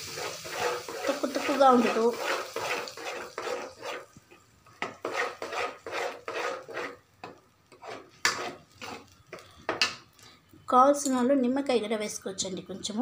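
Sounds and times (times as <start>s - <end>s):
metal spatula scraping pan: 0.0s - 4.2s, 4.8s - 9.8s.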